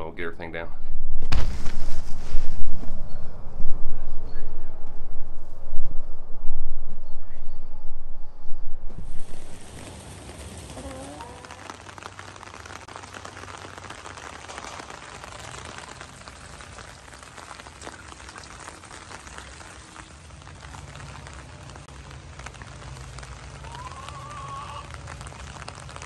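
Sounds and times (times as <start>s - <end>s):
rain falling on wet grass: 9.0s - 26.0s.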